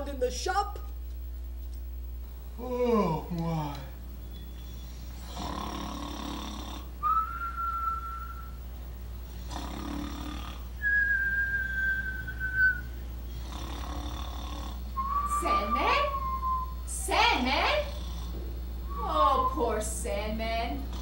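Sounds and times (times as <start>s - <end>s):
high steady whistle: 4.2s - 5.0s, 7.0s - 8.6s, 10.8s - 13.0s, 15.0s - 17.0s, 18.8s - 20.1s
cartoon rasping snore: 5.2s - 6.9s, 9.4s - 10.6s, 13.3s - 14.9s.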